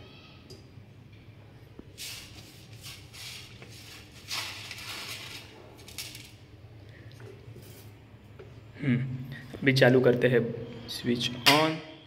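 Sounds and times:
scratchy rustling noises: 0:02.0 - 0:06.2.

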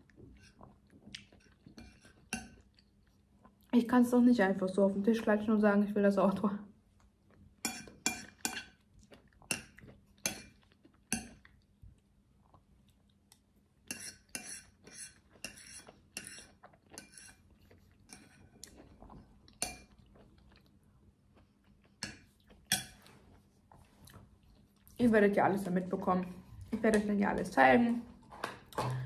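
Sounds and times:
close-up chewing: 0:07.0 - 0:13.6, 0:14.6 - 0:25.0.

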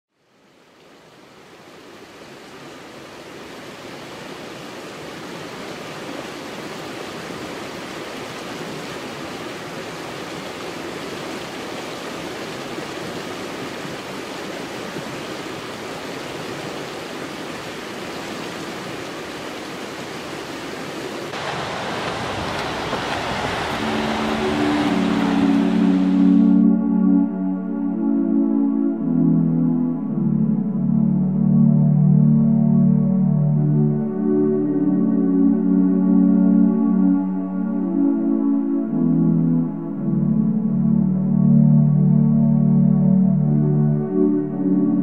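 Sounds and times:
mountain creek rushing: 0:00.2 - 0:26.6
sustained music tones: 0:21.4 - 0:45.0.

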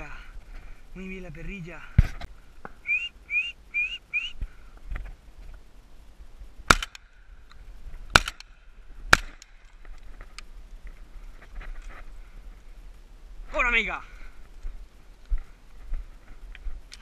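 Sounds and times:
short rising whistles: 0:02.8 - 0:04.4
shotgun shots: 0:06.7 - 0:07.0, 0:08.1 - 0:08.5, 0:09.1 - 0:09.4.

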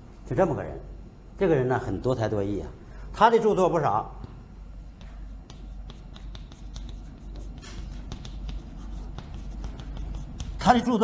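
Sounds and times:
chalk scraping: 0:05.0 - 0:10.9
chalk tapping on blackboard: 0:05.0 - 0:10.9.

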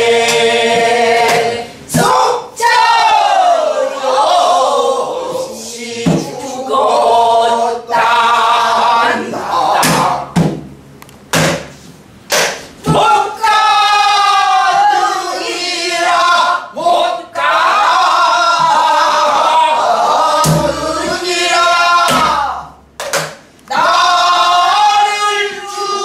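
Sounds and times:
men singing in unison: 0:00.0 - 0:02.4, 0:03.1 - 0:10.4, 0:12.9 - 0:22.7
barrel drum strikes: 0:09.8 - 0:13.0, 0:20.4 - 0:21.0.

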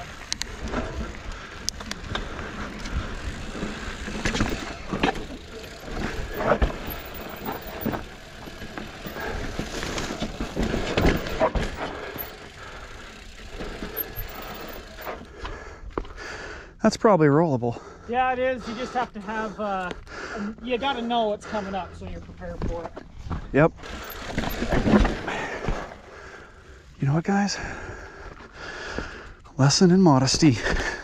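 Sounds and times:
bike knocking and rattling: 0:00.0 - 0:16.2, 0:22.4 - 0:26.5
tyres on dirt and rock: 0:00.0 - 0:16.2, 0:22.3 - 0:27.5.

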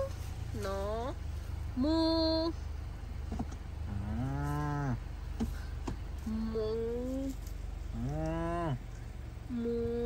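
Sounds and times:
cow mooing: 0:03.9 - 0:05.0, 0:07.9 - 0:08.8.

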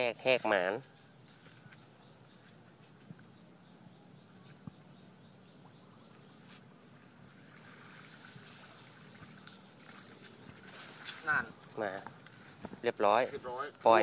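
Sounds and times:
water trickling and dripping: 0:05.7 - 0:12.4
fine crackles: 0:07.3 - 0:13.4.

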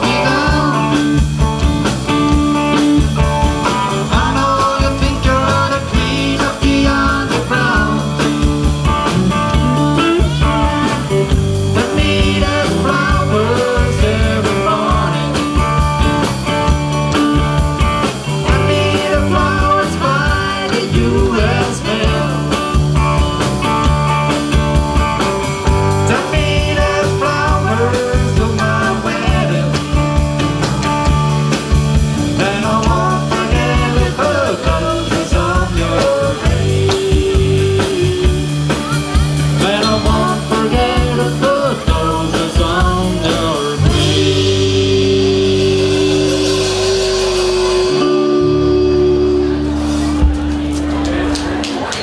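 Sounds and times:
person singing: 0:00.0 - 0:01.4, 0:03.6 - 0:08.6, 0:09.5 - 0:15.8, 0:18.4 - 0:22.9, 0:25.9 - 0:30.2, 0:32.3 - 0:50.4
drums with a steady beat: 0:00.0 - 0:52.0
electric guitar: 0:00.0 - 0:52.0.

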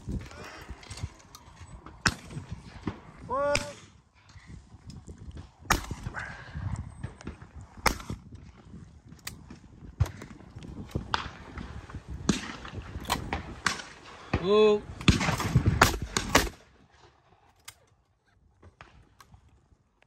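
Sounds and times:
shotgun shots: 0:05.7 - 0:06.0, 0:15.0 - 0:16.6.

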